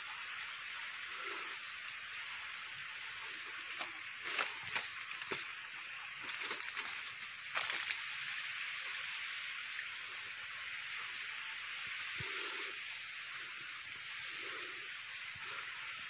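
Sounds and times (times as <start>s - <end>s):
steady high hiss: 0.0s - 16.0s
leaves and branches rustling: 2.8s - 9.2s.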